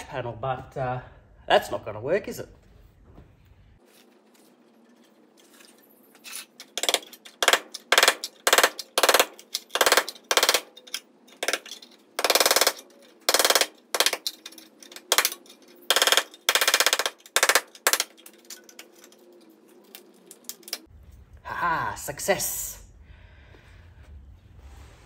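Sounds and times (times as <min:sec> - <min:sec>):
air hammer chiselling sheet steel: 0:06.7 - 0:18.3.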